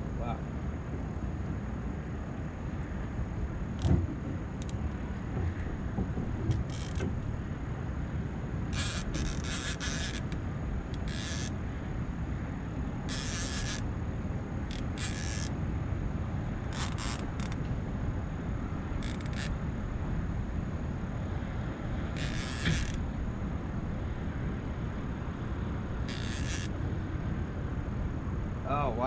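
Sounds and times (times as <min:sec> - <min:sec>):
steady low rumble: 0:00.0 - 0:26.1
fishing reel drag buzzing: 0:06.5 - 0:07.1, 0:08.7 - 0:11.6, 0:13.1 - 0:13.9, 0:14.7 - 0:15.6, 0:16.7 - 0:17.6, 0:19.0 - 0:19.6, 0:22.1 - 0:23.0, 0:26.0 - 0:26.8.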